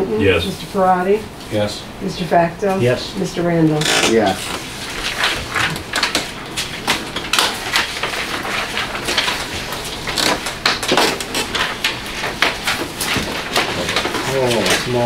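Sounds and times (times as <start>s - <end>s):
paper rustling and shuffling: 4.0s - 15.0s.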